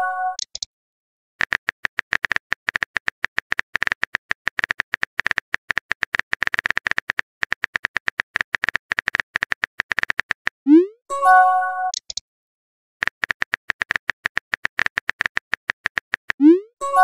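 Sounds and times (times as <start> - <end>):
phone keyboard typing clicks: 1.4 - 10.6, 11.9 - 12.2, 13.0 - 16.4.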